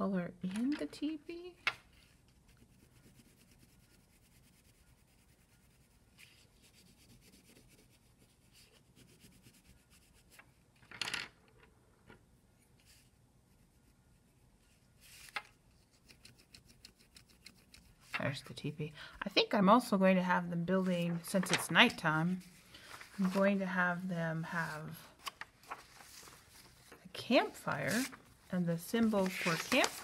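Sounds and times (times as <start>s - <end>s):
pencil scratching on paper: 2.4s - 10.4s, 15.8s - 18.1s
paper rustle: 14.6s - 18.3s, 20.8s - 30.0s.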